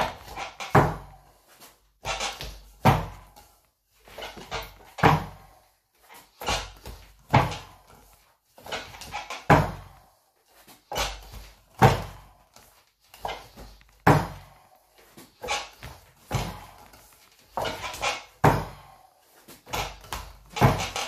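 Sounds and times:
fists on padded body: 2.0s - 3.4s, 11.0s - 14.6s, 15.4s - 18.9s, 19.6s - 21.0s
hands striking wooden training dummy: 13.2s - 14.4s, 17.5s - 18.8s, 19.6s - 21.0s.

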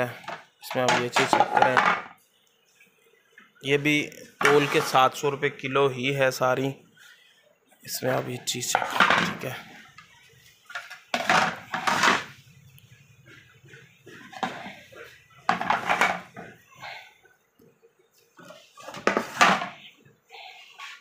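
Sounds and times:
trays clattering and scraping: 0.0s - 2.1s, 4.4s - 5.1s, 8.7s - 9.6s, 10.7s - 12.4s, 13.8s - 16.6s, 18.4s - 19.8s.

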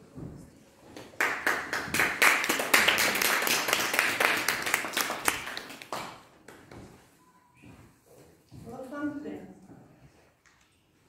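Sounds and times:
audience applauding: 1.2s - 6.3s.

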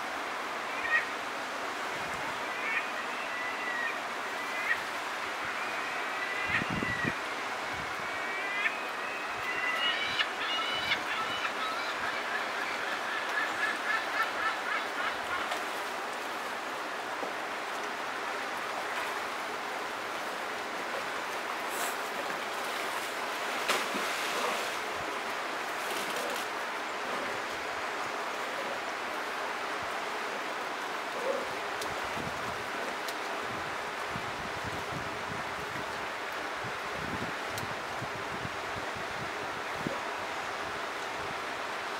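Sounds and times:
stream rushing: 0.0s - 41.9s
water splashes: 12.6s - 27.6s.

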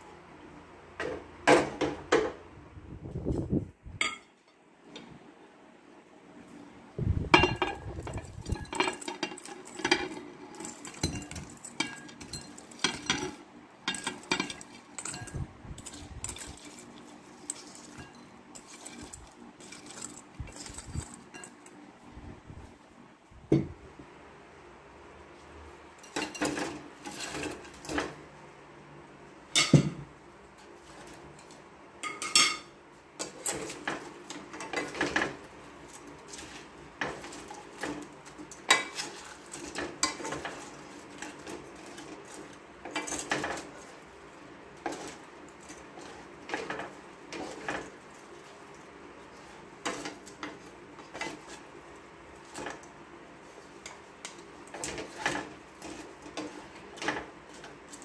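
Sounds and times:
spatula scraping and knocking wok: 7.3s - 21.8s, 26.0s - 28.3s, 29.5s - 58.0s.

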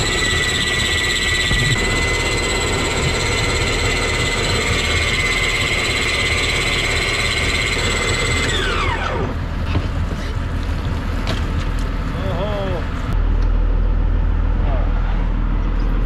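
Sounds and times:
electric motor whining: 0.0s - 10.5s
boat engine rumble: 9.3s - 16.0s.

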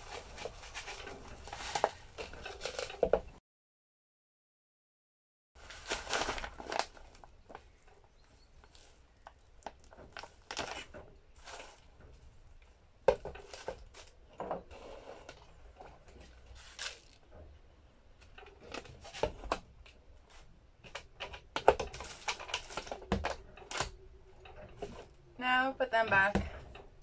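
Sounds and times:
plastic bag rustling: 0.0s - 3.2s, 5.6s - 7.9s, 8.6s - 12.0s, 14.8s - 17.3s
plastic clicks and knocks: 20.8s - 25.0s.

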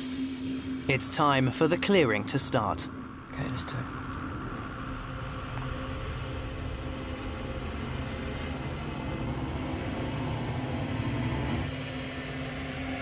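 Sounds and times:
low droning rumble: 0.0s - 13.0s.

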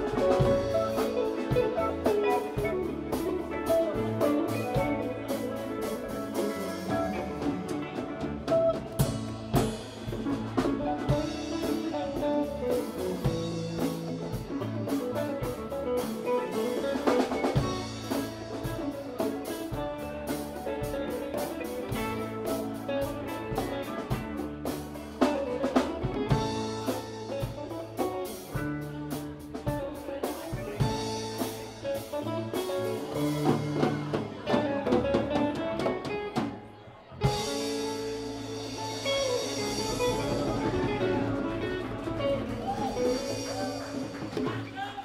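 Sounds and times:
live rock band playing: 0.0s - 45.0s.

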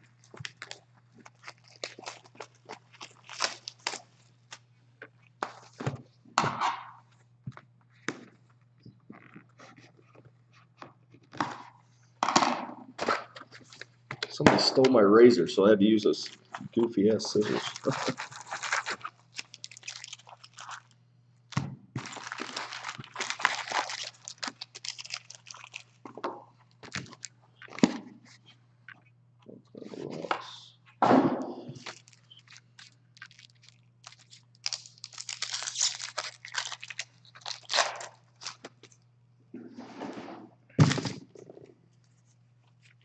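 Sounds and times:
foil packs crinkling: 0.0s - 4.7s, 16.1s - 21.0s, 22.0s - 26.1s, 26.7s - 27.8s, 31.8s - 39.0s.

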